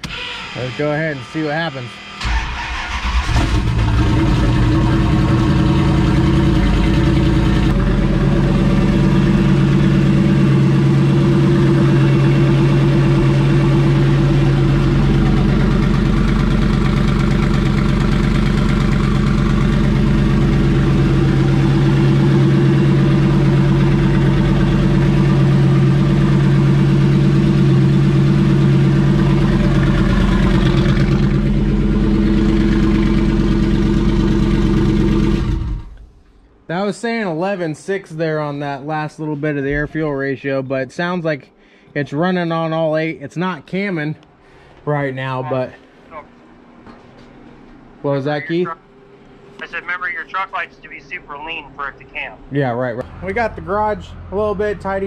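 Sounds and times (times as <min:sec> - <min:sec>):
car engine cranking and idling: 0:00.0 - 0:36.3, 0:53.0 - 0:55.0.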